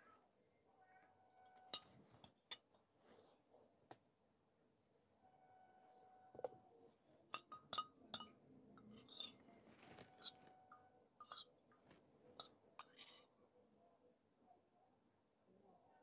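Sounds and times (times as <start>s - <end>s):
ringing clinks of clay and spoon: 7.4s - 9.4s.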